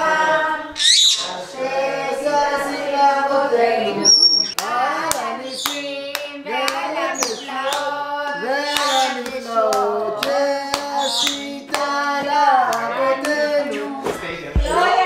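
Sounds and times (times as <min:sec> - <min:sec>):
group singing: 0:00.0 - 0:15.0
hands clapping in time: 0:04.5 - 0:07.9, 0:08.7 - 0:13.4.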